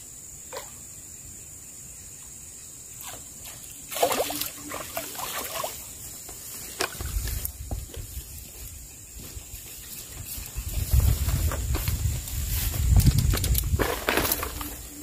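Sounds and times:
water splashing: 3.0s - 6.0s.

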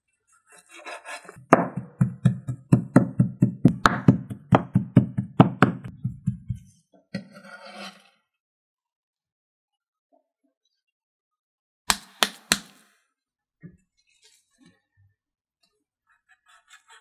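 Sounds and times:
cleaver chopping meat on board: 1.4s - 6.6s.

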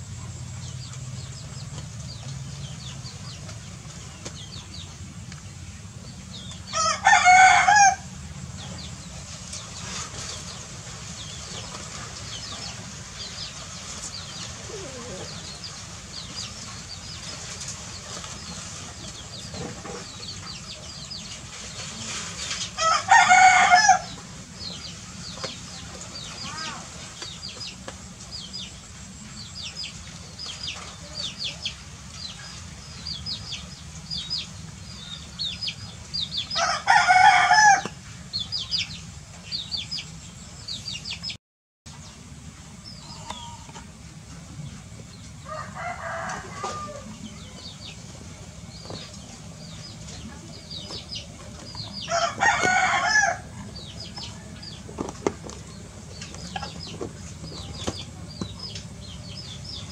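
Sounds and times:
rooster crowing: 6.7s - 8.1s, 22.8s - 24.1s, 36.5s - 38.0s, 45.4s - 47.2s, 52.0s - 53.6s.

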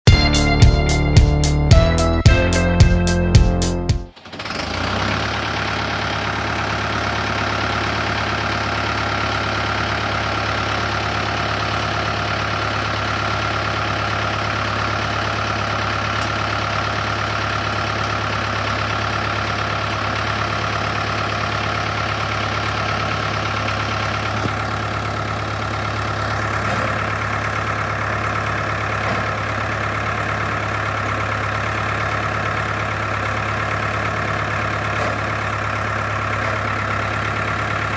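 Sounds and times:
tractor engine idling: 0.0s - 37.9s.

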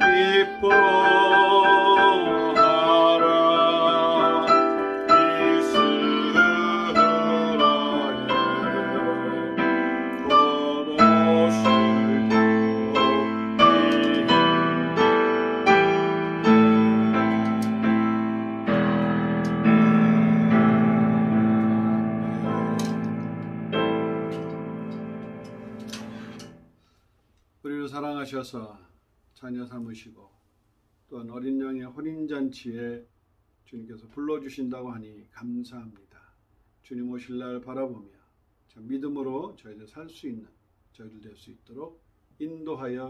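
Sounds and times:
slow gentle piano music: 0.0s - 26.7s.

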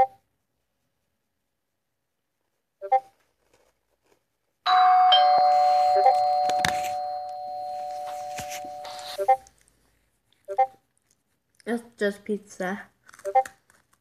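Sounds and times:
two-note doorbell chime: 4.7s - 9.2s.

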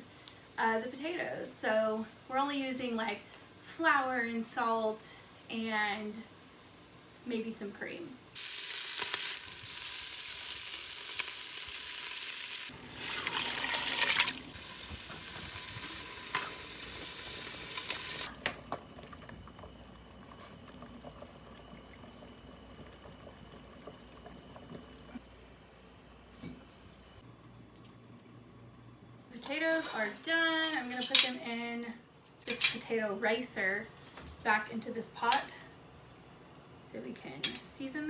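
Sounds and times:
pot boiling with loud hiss: 0.0s - 25.2s.

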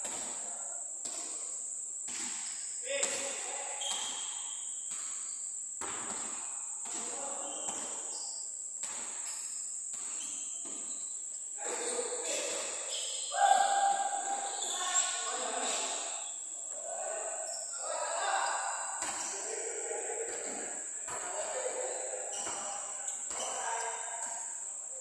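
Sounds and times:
players' voices: 11.6s - 25.0s.

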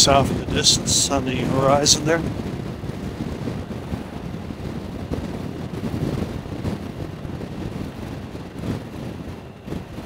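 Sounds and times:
motorcycle engine and tyre rumble: 0.0s - 10.0s
wind buffeting microphone: 0.0s - 10.0s.

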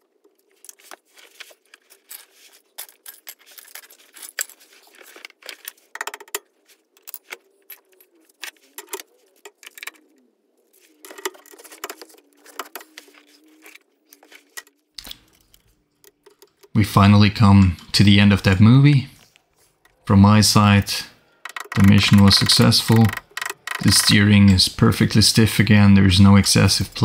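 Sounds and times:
metallic clicks of hand tools: 21.4s - 24.2s.

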